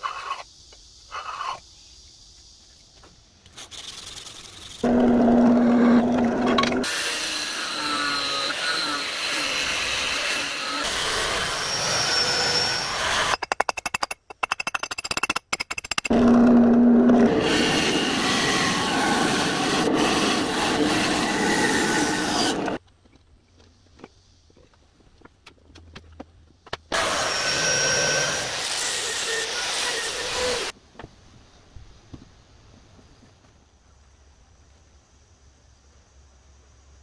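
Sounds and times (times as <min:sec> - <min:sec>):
power grinder working a knife: 0:04.8 - 0:13.4, 0:16.1 - 0:22.8, 0:26.9 - 0:30.7.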